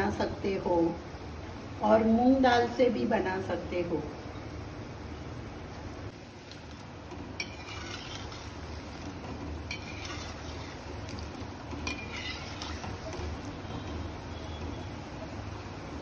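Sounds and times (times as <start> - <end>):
batter sizzling in hot oil: 5.1 - 16.0
metal spoon scraping a pan: 7.4 - 14.7.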